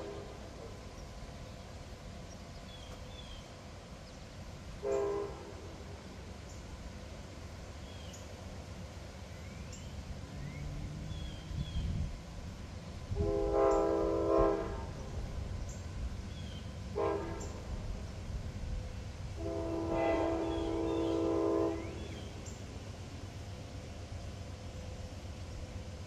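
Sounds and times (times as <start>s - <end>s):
locomotive air horn blasts: 4.8s - 5.5s, 13.1s - 15.2s, 16.9s - 17.8s, 19.3s - 22.2s.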